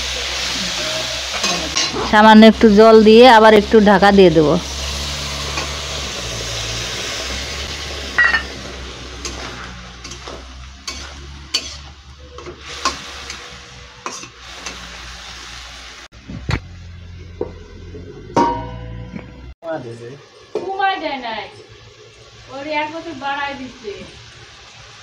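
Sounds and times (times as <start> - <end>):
water sizzling in hot pan: 0.0 - 16.1, 19.6 - 25.0
metal spatula scraping pan: 9.2 - 14.8.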